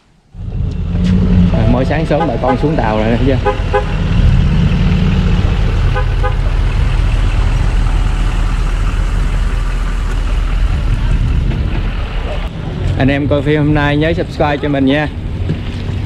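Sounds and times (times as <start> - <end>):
truck engine idling: 1.4 - 12.9.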